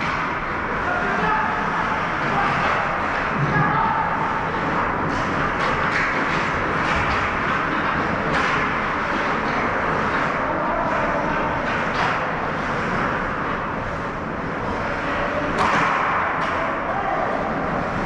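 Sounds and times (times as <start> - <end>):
steady rushing noise: 0.0 - 18.0
sharp scrapes and knocks: 4.6 - 10.4.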